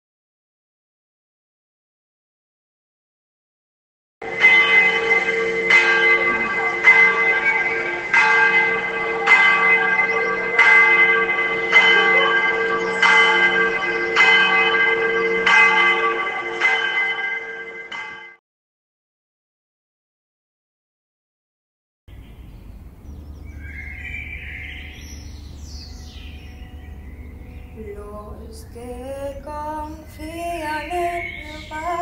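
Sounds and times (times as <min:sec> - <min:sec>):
church bell tolling: 0:04.2 - 0:18.4, 0:22.1 - 0:32.0.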